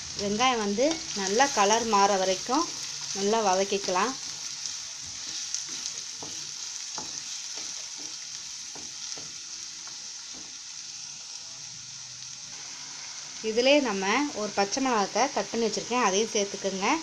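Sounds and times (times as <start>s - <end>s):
onions sizzling in hot oil: 0.0s - 17.0s
wooden spatula scraping a pan: 0.8s - 9.4s.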